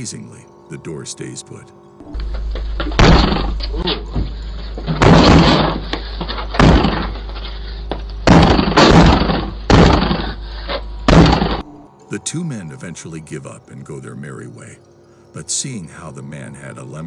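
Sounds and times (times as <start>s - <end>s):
steady low hum: 0.0s - 17.0s
heavy kicks on a door: 2.3s - 5.9s, 6.5s - 7.3s, 8.2s - 10.4s, 11.1s - 11.6s.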